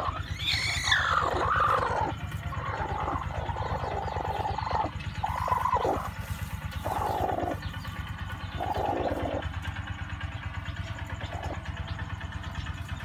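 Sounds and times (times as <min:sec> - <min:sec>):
hen raspy growls: 0:00.0 - 0:06.2, 0:06.8 - 0:07.6, 0:08.6 - 0:09.6
low mechanical throb: 0:00.0 - 0:13.0.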